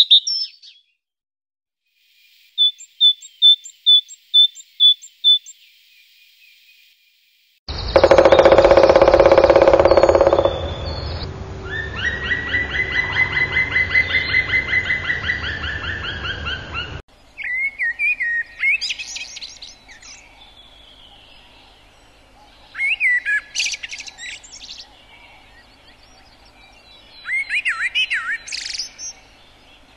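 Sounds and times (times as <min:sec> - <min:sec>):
rapid repeated bird chirps: 0:00.0 - 0:00.8, 0:02.4 - 0:05.7, 0:07.7 - 0:11.3, 0:11.9 - 0:29.9
sharp high bird chirps: 0:07.7 - 0:11.3
loud buzzy bird call: 0:07.7 - 0:17.0.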